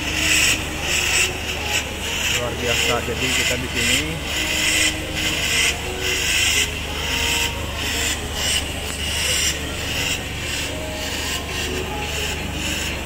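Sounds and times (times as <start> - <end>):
liquid nitrogen hissing spurts: 0.0 - 13.0
steady low hum: 0.0 - 13.0.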